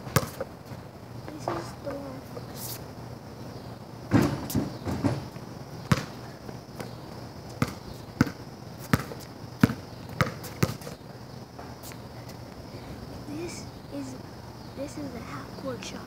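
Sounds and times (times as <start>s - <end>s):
ball bouncing on concrete: 0.1s - 0.5s, 4.1s - 5.3s, 5.9s - 6.2s, 6.8s - 11.0s.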